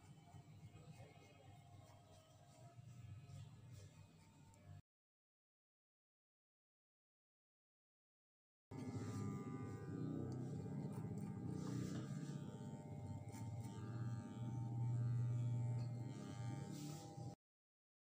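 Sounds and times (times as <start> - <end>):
electric hair clipper humming: 8.7 - 17.4.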